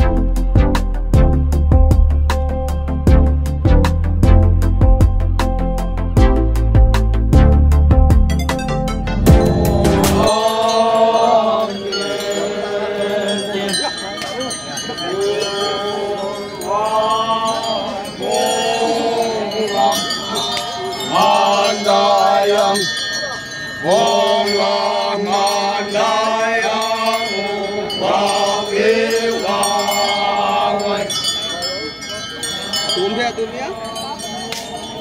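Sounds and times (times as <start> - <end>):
low vocal drone: 9.0 - 13.9, 15.0 - 22.9, 23.8 - 31.2
men chanting in chorus: 9.4 - 23.0, 23.8 - 31.8.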